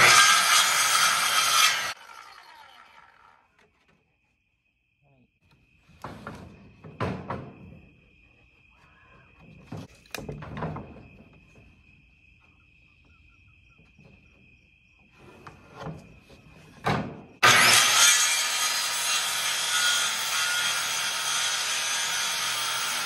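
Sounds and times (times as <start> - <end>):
circular saw running: 0.0 - 3.4, 17.4 - 23.0
crickets chirring: 3.4 - 17.4
boards knocking and scraping: 5.8 - 7.9, 9.4 - 11.8.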